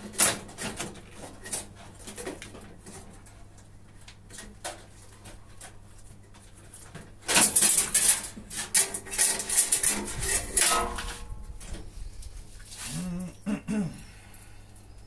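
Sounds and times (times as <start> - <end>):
metal and plastic parts scraping: 4.3 - 12.4.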